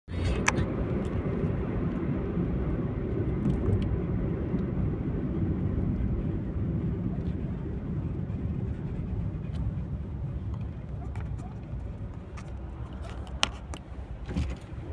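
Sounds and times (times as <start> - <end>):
car road and engine noise: 0.1 - 14.9.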